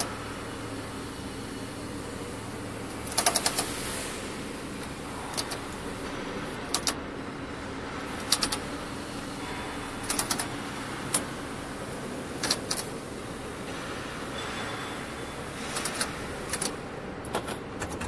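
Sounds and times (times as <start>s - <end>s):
steady low hum: 0.0s - 18.0s
braiding machine metallic clicks: 3.0s - 3.7s, 4.8s - 5.7s, 6.7s - 7.0s, 8.2s - 8.7s, 9.9s - 11.3s, 12.4s - 12.9s, 15.6s - 18.0s.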